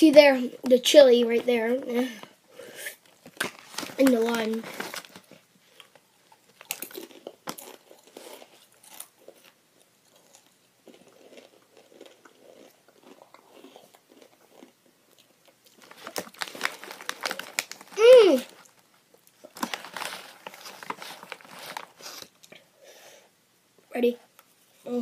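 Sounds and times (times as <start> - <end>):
crinkling: 3.0 - 22.6
chewing crunchy chip: 3.1 - 22.5.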